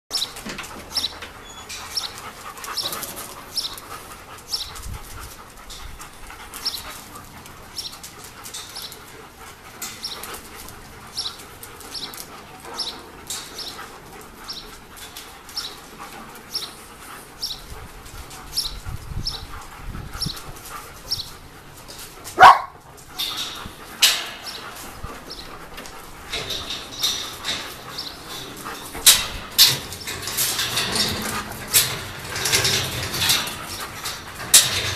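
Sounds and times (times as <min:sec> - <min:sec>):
dogs whining: 0:00.1 - 0:34.9
loud sharp dog cry: 0:22.4 - 0:22.8.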